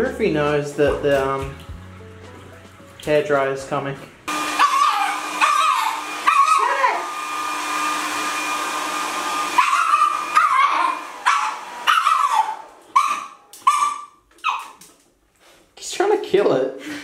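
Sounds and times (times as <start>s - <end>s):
hair dryer blowing: 4.3s - 13.6s
puppy barking: 4.4s - 7.1s, 9.4s - 14.9s.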